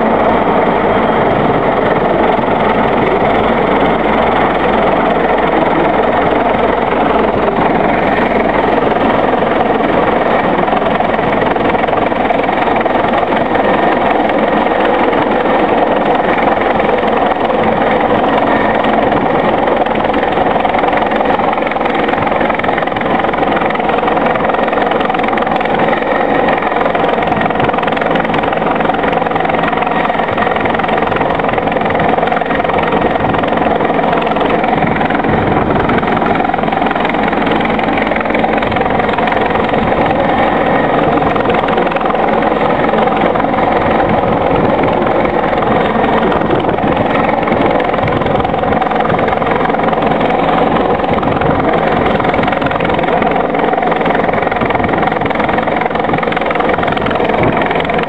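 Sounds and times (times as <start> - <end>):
helicopter rotor and turbine noise: 0.0 - 58.0.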